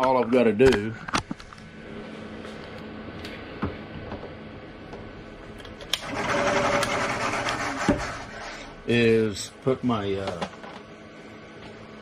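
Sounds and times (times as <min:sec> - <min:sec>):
milling machine humming: 0:05.8 - 0:08.9
loud whirring: 0:05.9 - 0:08.5.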